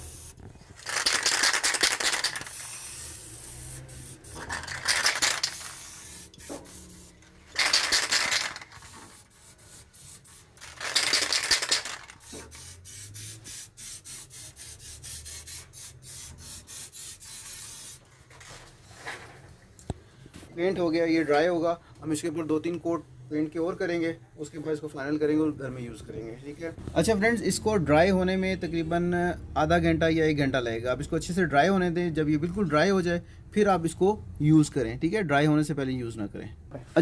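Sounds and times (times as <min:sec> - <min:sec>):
spray can clicking and rattling: 0:00.0 - 0:18.1
spray can hissing: 0:00.0 - 0:18.1.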